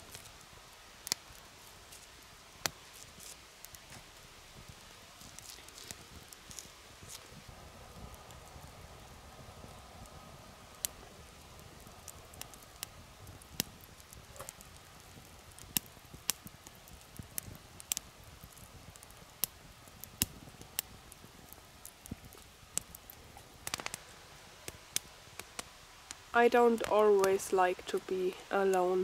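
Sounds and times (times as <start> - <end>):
low rush of burning: 0.0 - 29.0
wood fire crackling: 0.0 - 29.0
sharp pops and snaps: 1.0 - 7.3, 11.8 - 28.1.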